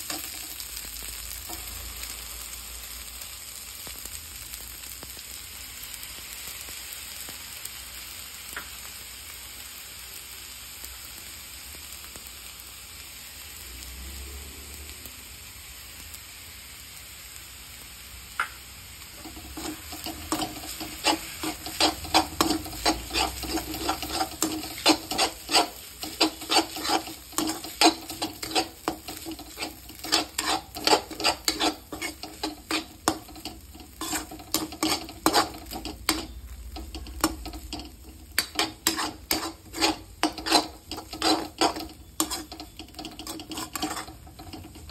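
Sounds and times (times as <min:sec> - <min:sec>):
noodles sizzling in a wok: 0:00.0 - 0:44.9
metal spoon clanking in a wok: 0:19.2 - 0:44.9.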